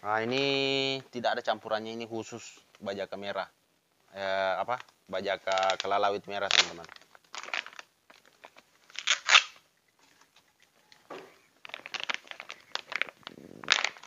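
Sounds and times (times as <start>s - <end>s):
plastic crinkling: 4.6s - 14.0s
plastic pouch ripping: 4.7s - 9.6s, 11.6s - 14.0s.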